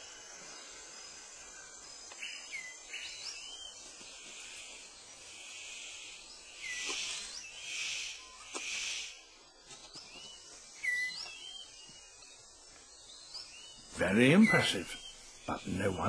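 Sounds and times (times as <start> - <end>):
high insect buzz: 0.0 - 16.0
bird whistles: 10.8 - 11.7.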